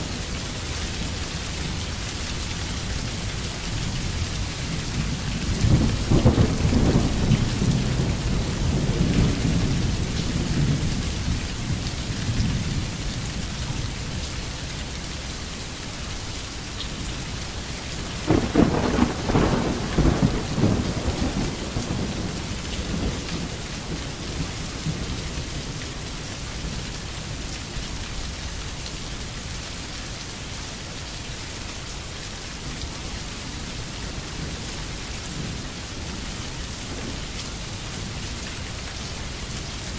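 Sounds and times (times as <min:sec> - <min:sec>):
steady rain: 0:00.0 - 0:39.9
rolling thunder: 0:05.0 - 0:10.9, 0:18.2 - 0:25.1.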